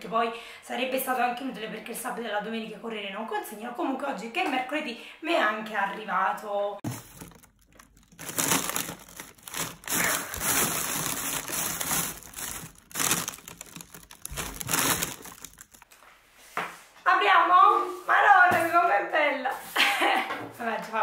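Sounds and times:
plastic packaging crinkling: 6.8s - 16.0s.

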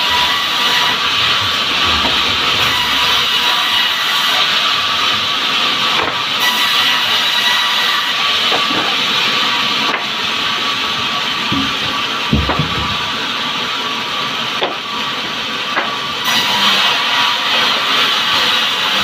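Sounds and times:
log thumps on saw table: 6.0s - 6.2s, 11.5s - 13.1s.

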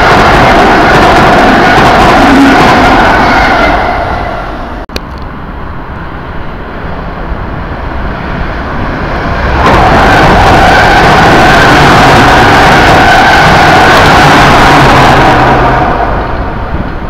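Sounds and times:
train passing rumble: 0.0s - 17.0s.

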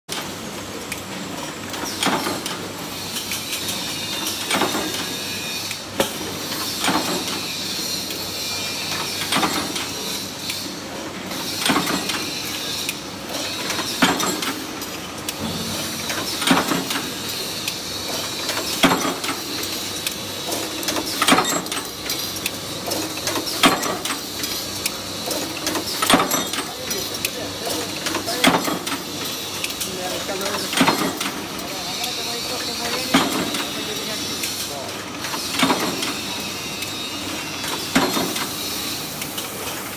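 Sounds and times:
machine running noise: 0.1s - 39.9s
punch press metallic strike: 15.4s - 17.5s.

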